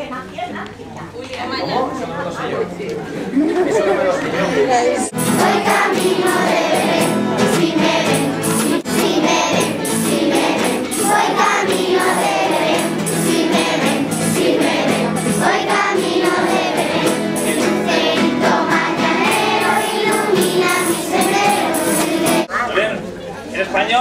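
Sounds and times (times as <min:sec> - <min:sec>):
children's choir singing a carol: 0:05.1 - 0:22.5.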